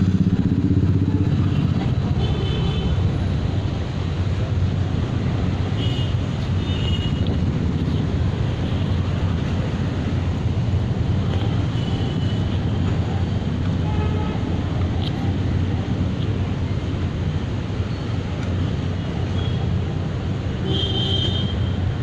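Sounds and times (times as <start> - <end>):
city street rumble: 0.0 - 22.0.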